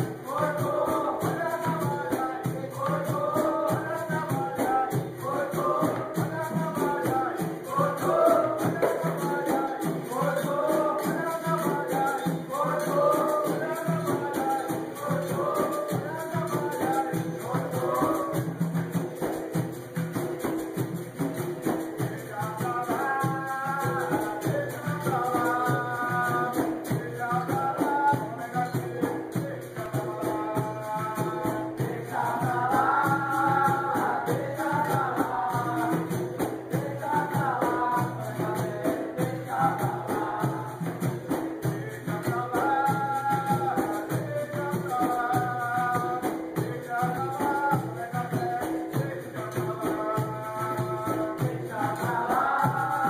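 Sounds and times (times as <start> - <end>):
voices singing a chorus: 0.0 - 19.4, 20.4 - 53.0
berimbaus with shaker rattles: 0.0 - 53.0
hand drum rhythm: 0.0 - 53.0
tambourine: 0.0 - 53.0.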